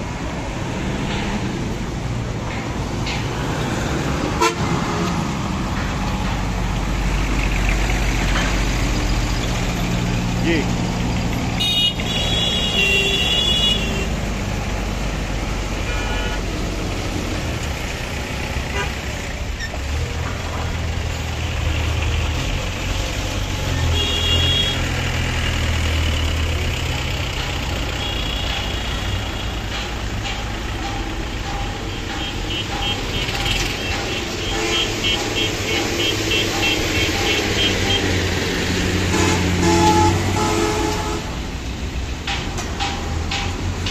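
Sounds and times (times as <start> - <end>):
truck engine passing: 0.0 - 12.7, 13.8 - 43.9
traffic rumble: 0.0 - 43.9
vehicle horns tooting: 4.4 - 4.8, 11.6 - 14.2, 15.8 - 16.5, 23.8 - 25.0, 32.1 - 38.2, 39.1 - 41.4.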